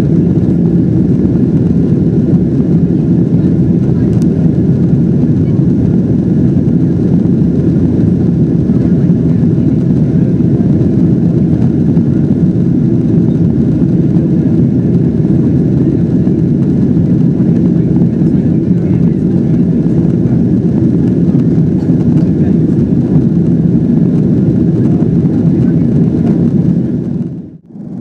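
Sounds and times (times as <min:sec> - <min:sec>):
airplane cabin engine and airflow noise: 0:00.0 - 0:28.0.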